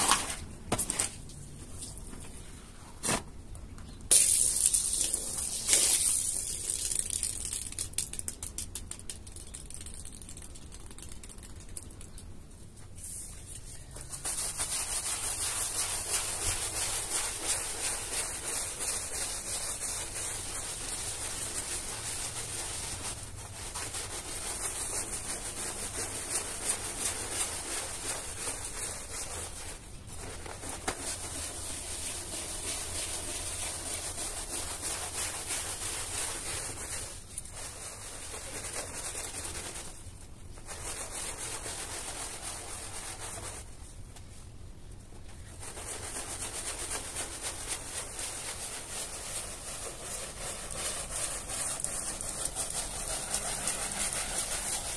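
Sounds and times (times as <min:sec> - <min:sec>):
brush scrubbing wet carpet: 0:13.0 - 0:43.8, 0:45.5 - 0:54.9.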